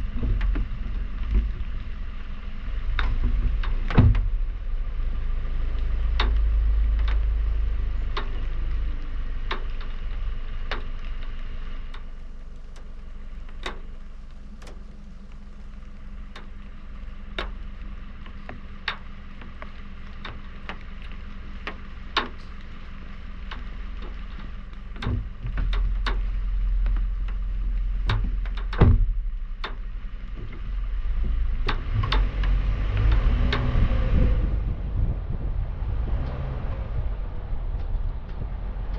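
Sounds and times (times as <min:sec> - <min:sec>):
car idling: 0:00.0 - 0:38.9
engine and road rumble: 0:00.0 - 0:38.9
loud thud: 0:03.9 - 0:04.4, 0:28.8 - 0:29.2
water drops ticking on camera: 0:05.6 - 0:33.9.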